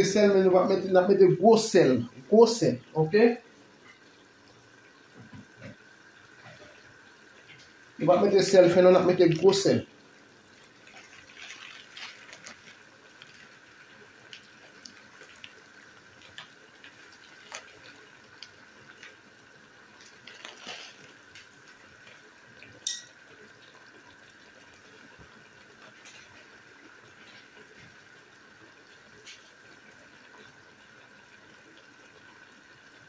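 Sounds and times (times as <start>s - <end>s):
vegetables simmering in a pot: 0.0s - 33.0s
small pops and crackles: 10.5s - 28.1s, 28.8s - 30.7s.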